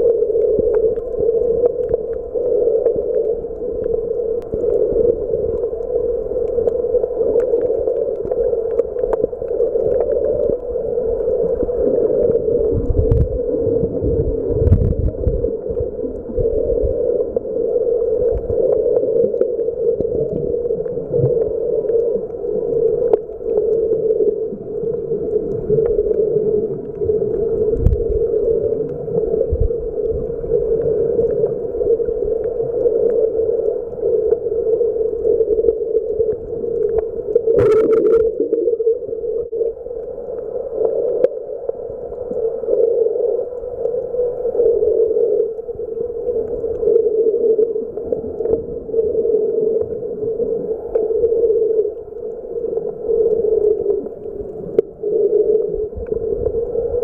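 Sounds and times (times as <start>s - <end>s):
muffled underwater rushing: 0.0s - 57.0s.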